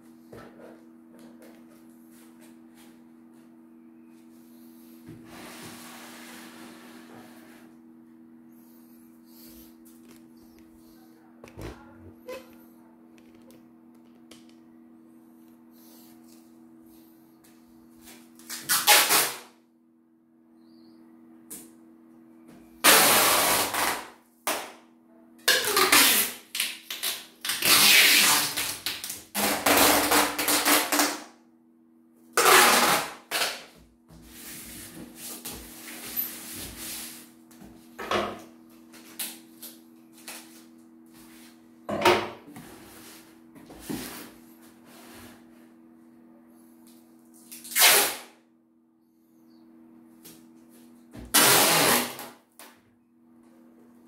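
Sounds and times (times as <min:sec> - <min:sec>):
faint low hum: 0:00.0 - 0:18.6
packing tape pulled off roll: 0:18.4 - 0:19.5, 0:22.8 - 0:24.7, 0:25.5 - 0:31.3, 0:32.4 - 0:33.7, 0:47.4 - 0:48.3, 0:51.3 - 0:52.4.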